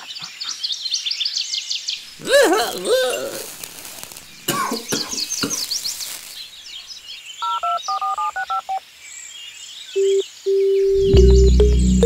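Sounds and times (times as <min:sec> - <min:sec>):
birds chirping: 0:02.0 - 0:08.0, 0:09.0 - 0:12.0
telephone keypad dialing beeps: 0:07.4 - 0:08.8, 0:10.0 - 0:10.9.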